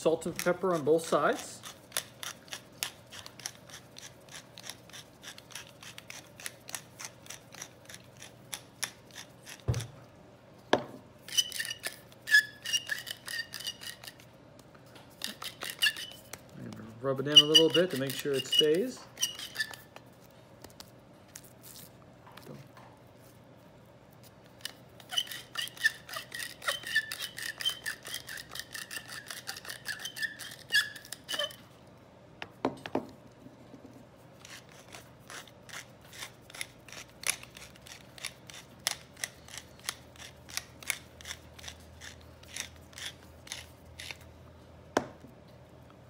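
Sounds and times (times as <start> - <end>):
squeaky ring: 17.3 - 19.9, 25.0 - 31.6.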